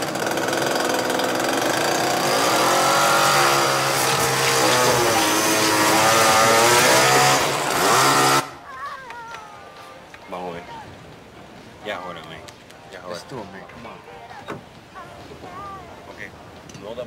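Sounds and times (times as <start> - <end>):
chainsaw running: 0.0 - 8.6.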